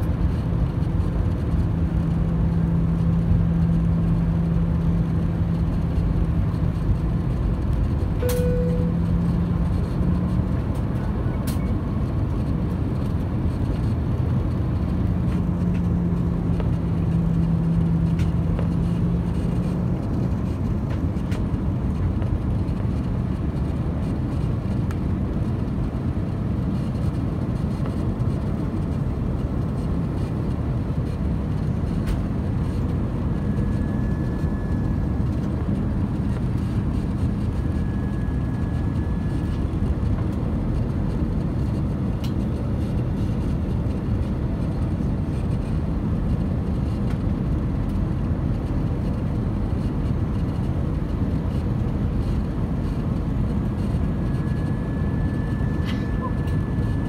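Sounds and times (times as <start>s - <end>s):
low hum: 0.0s - 27.0s, 51.9s - 57.0s
airliner cabin roar: 0.0s - 57.0s.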